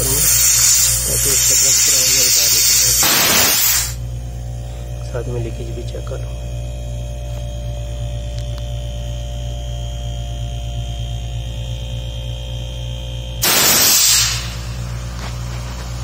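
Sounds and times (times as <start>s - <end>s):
low electrical hum: 0.0s - 16.0s
brief loud hiss: 1.9s - 4.0s, 13.4s - 14.9s.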